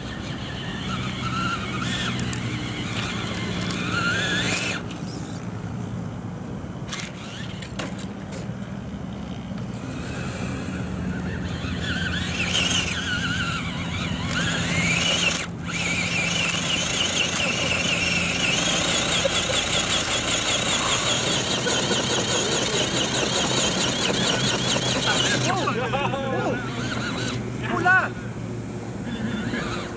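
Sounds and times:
tyres crawling over gravel: 0:00.0 - 0:05.0, 0:09.6 - 0:27.8
electric motor whining: 0:00.0 - 0:05.5, 0:06.9 - 0:08.1, 0:09.6 - 0:27.9, 0:28.9 - 0:29.9.

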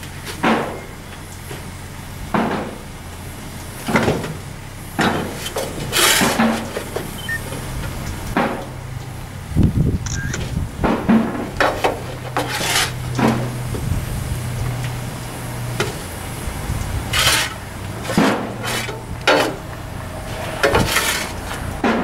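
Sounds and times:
shovel scraping and clanking: 0:05.0 - 0:07.3, 0:10.1 - 0:13.7, 0:17.1 - 0:22.0.

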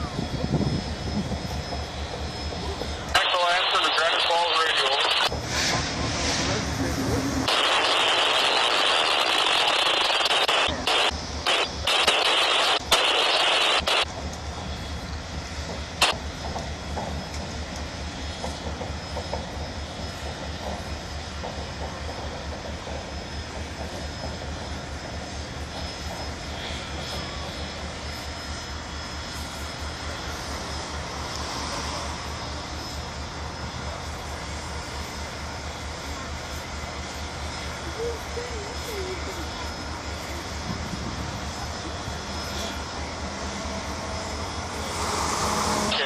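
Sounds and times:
low pulsing machinery rumble: 0:00.0 - 0:46.0
steam hissing from locomotive: 0:15.7 - 0:46.0.

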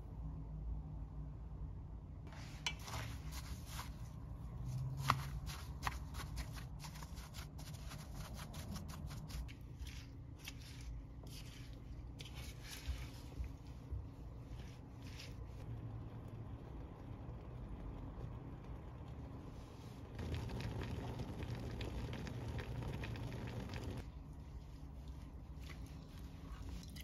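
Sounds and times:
objects rustling and scraping: 0:02.3 - 0:08.1, 0:08.8 - 0:15.6.

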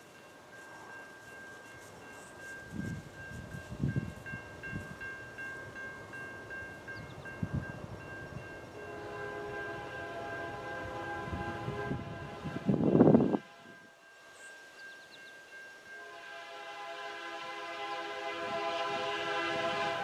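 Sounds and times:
crossing warning bell ringing: 0:00.0 - 0:20.0
locomotive air horn: 0:08.9 - 0:13.8, 0:16.0 - 0:20.0.

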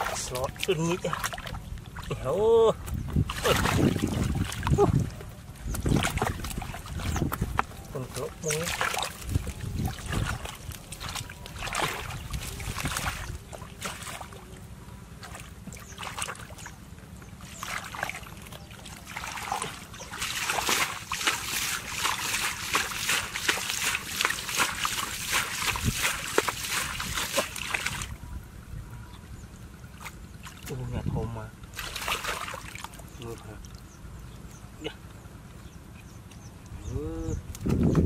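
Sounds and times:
hands squelching in wet mud: 0:00.0 - 0:14.5, 0:15.2 - 0:16.8, 0:17.4 - 0:28.2, 0:31.7 - 0:33.9
water splashing: 0:00.0 - 0:16.8, 0:17.4 - 0:28.2, 0:29.8 - 0:30.9, 0:31.7 - 0:33.9.

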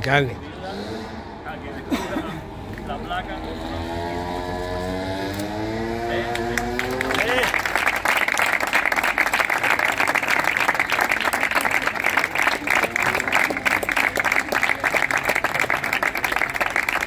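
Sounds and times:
crowd applauding: 0:06.3 - 0:17.0.

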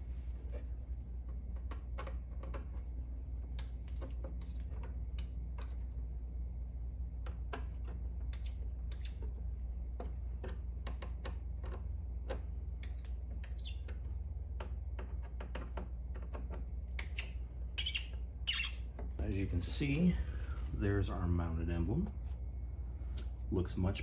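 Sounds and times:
screws squeaking in plastic: 0:04.4 - 0:04.8, 0:08.4 - 0:09.2, 0:12.8 - 0:14.0, 0:17.0 - 0:18.9.

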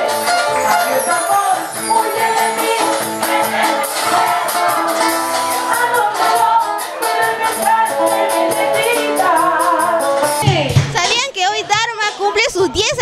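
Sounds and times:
drums: 0:00.0 - 0:13.0
guitars: 0:00.0 - 0:13.0
woman singing: 0:05.6 - 0:11.0.

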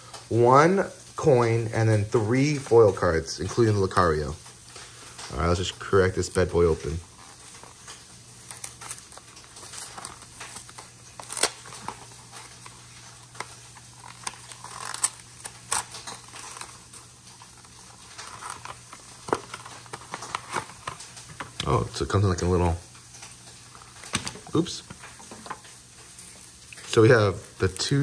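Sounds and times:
packaging being opened by hand: 0:03.5 - 0:28.0.

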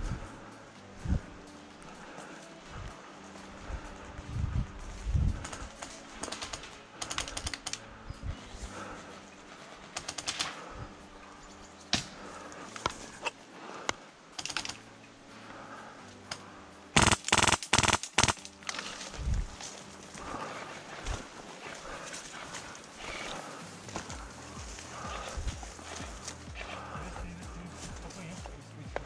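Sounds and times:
airsoft guns firing full-auto: 0:10.0 - 0:10.6, 0:17.0 - 0:18.4.

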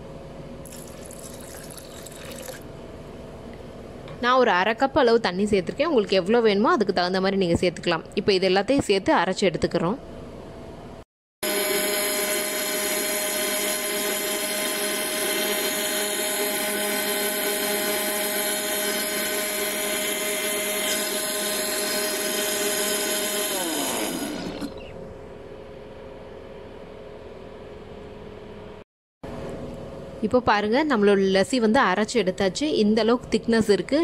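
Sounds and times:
mixer grinder running: 0:11.4 - 0:24.9
motor winding down whine: 0:11.4 - 0:25.0.

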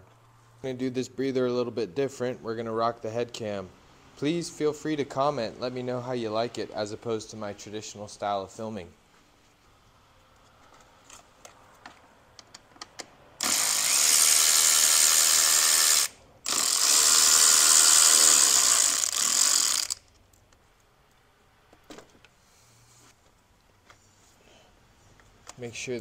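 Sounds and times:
electric ratchet spinning: 0:13.4 - 0:20.0.

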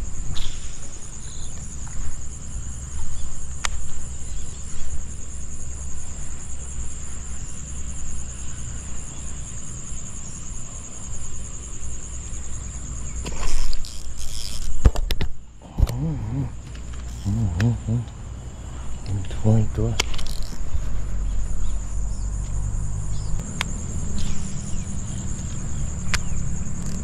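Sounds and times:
insects trilling: 0:00.0 - 0:27.0
rod and reel handling noise: 0:13.2 - 0:15.3, 0:20.0 - 0:20.8.

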